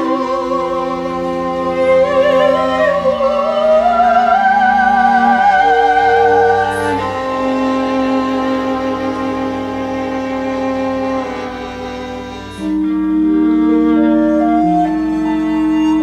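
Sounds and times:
soprano singing with vibrato: 0.0 - 8.6
sustained string chords: 0.0 - 16.0.

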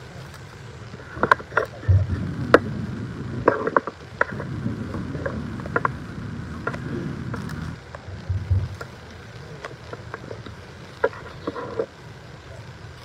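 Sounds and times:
low rumble: 0.0 - 13.0
microphone handling clicks and knocks: 6.6 - 9.0
microphone thump: 6.7 - 8.8.

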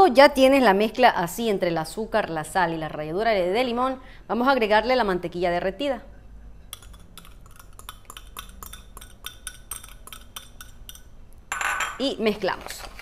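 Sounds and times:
whisk clinking against plastic bowl: 6.8 - 11.1.

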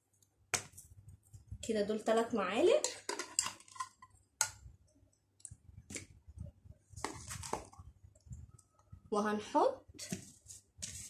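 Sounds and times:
spice containers clicking and rustling: 2.8 - 4.6, 7.0 - 7.9.

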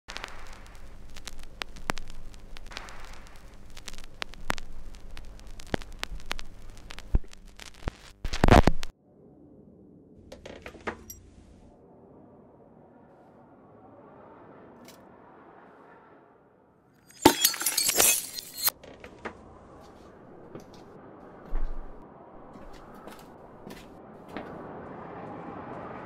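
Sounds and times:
crackle and pops: 0.0 - 9.0, 17.1 - 18.8
steady low hum: 0.1 - 10.4
quiet low rumble: 0.1 - 16.5, 19.4 - 26.0.

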